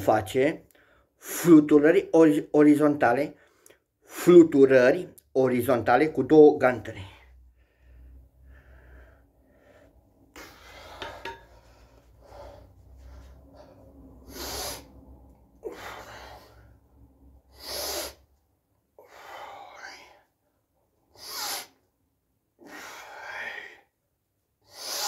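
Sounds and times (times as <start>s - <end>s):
man breathing hard: 7.2s - 21.9s, 22.6s - 24.0s, 24.6s - 25.0s.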